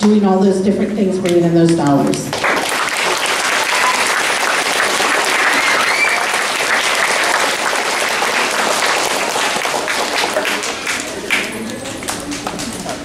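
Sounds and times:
children applauding: 2.3s - 13.0s.

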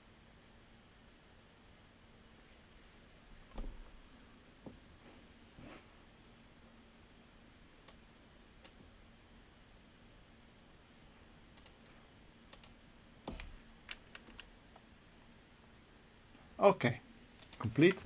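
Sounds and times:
faint low hum: 0.0s - 18.0s
keyboard keys clicking: 17.4s - 18.0s.

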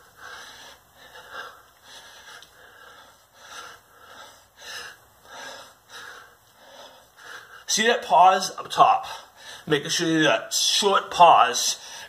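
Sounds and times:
man breathing hard: 0.0s - 7.7s, 9.0s - 9.7s, 11.8s - 12.0s.

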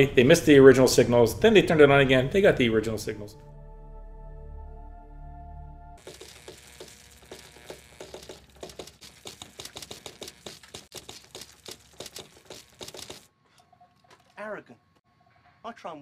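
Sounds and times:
spark gap crackling: 6.0s - 13.3s.

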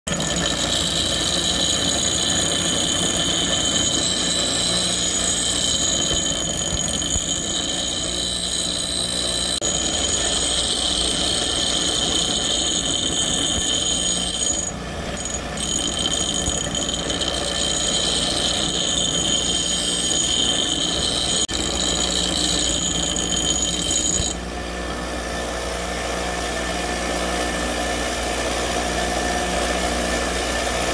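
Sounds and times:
bench grinder motor hum: 0.1s - 24.4s
hatchet grinding on wheel: 0.1s - 24.4s.

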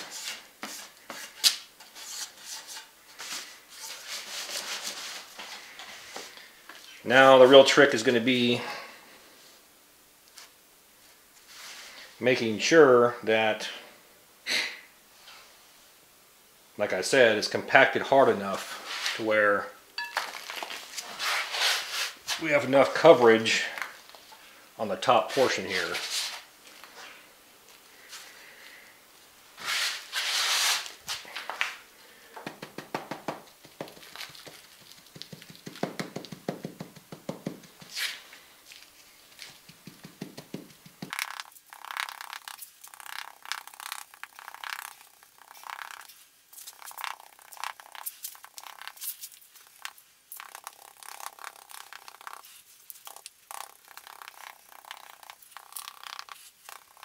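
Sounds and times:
clay scraping and rustling: 0.0s - 7.2s, 18.4s - 24.5s, 25.2s - 28.8s, 29.6s - 57.0s
stick knocking clay: 32.4s - 38.0s, 39.6s - 41.4s.

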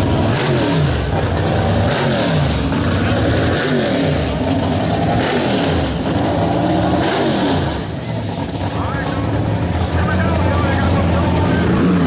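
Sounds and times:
engine revving in blips: 0.0s - 12.0s.

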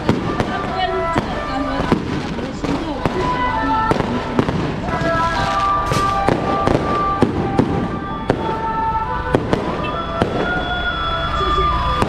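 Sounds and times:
firecrackers banging: 0.0s - 12.0s
music with long held notes: 0.0s - 12.0s.

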